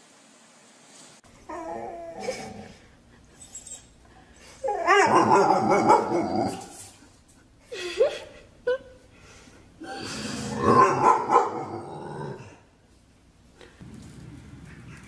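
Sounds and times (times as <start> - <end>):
dog whining and yipping: 3.3 - 6.7.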